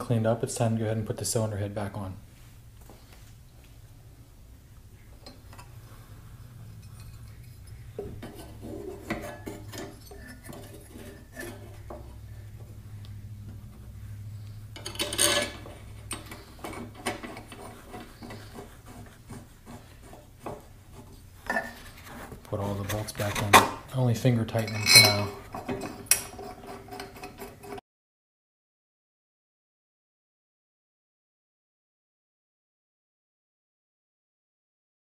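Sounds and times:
metal clinking and scraping: 6.4s - 12.8s, 14.4s - 27.8s
metal clatter: 6.7s - 12.2s, 14.8s - 18.6s.

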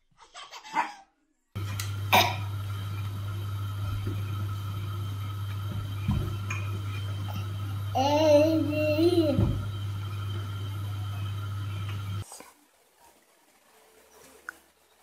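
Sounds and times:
steady low hum: 1.6s - 12.3s.

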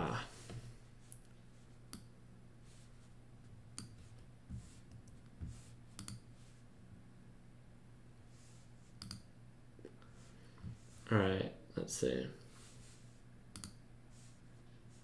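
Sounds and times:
low steady hum: 0.0s - 15.0s
computer mouse clicks: 3.8s - 4.0s, 6.0s - 6.2s, 9.0s - 9.3s, 13.5s - 13.8s.

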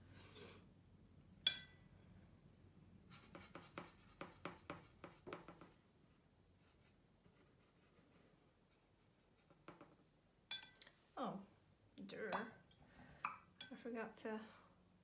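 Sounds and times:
clink against a jar: 10.5s - 10.9s.

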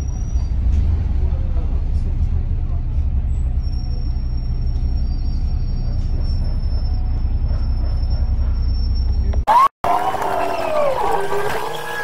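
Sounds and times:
bus engine rumble: 0.0s - 9.5s.

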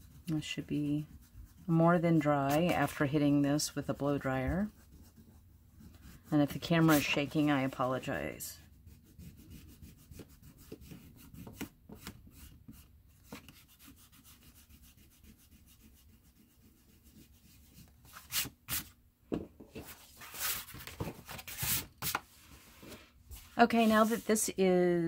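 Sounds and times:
eraser rubbing on paper: 0.0s - 11.7s, 12.3s - 18.9s, 23.4s - 24.6s.

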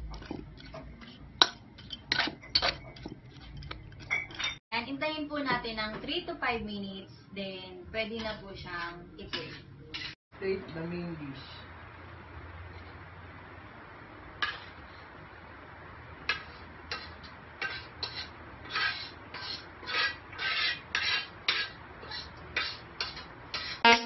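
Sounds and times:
utensil scraping cooking pan: 0.0s - 4.6s, 8.1s - 10.2s, 14.3s - 24.0s.

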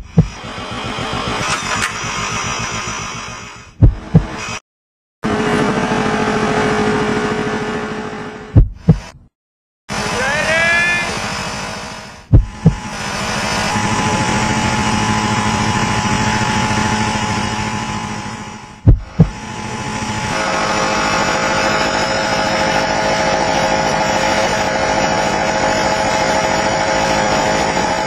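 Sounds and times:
heavy thumps: 0.0s - 0.4s, 3.8s - 4.4s, 8.5s - 9.3s, 12.3s - 12.9s, 18.8s - 19.4s
short rising whine: 0.0s - 4.6s, 9.9s - 28.0s
lawn mower engine running: 0.1s - 4.6s, 12.5s - 28.0s.

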